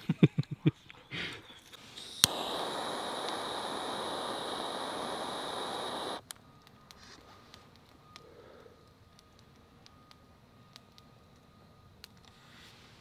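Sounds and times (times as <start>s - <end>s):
torch flame hissing: 1.8s - 6.2s
torch igniter click: 2.0s - 6.3s.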